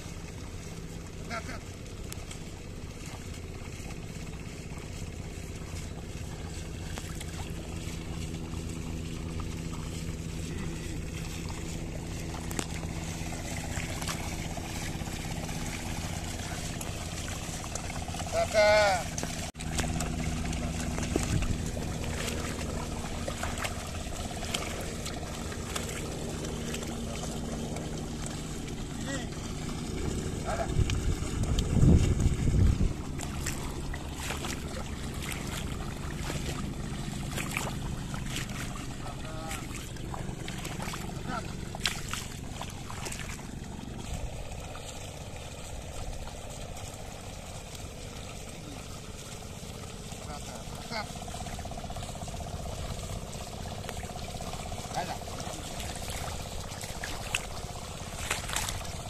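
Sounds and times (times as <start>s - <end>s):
small splashes from hooves: 0.0s - 59.0s
steady low hum: 0.0s - 59.0s
water and mud sloshing: 0.0s - 59.0s
low rumble: 1.8s - 49.7s.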